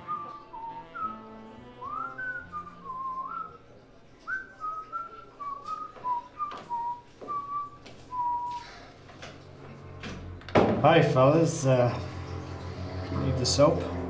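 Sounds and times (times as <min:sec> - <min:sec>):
person whistling a tune: 0:00.0 - 0:03.6, 0:04.3 - 0:08.8.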